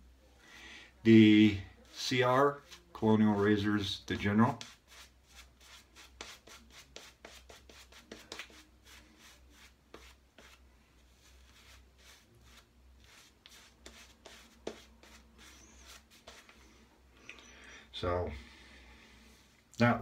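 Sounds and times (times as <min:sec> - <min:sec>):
shaving brush rubbing: 0:01.7 - 0:16.8.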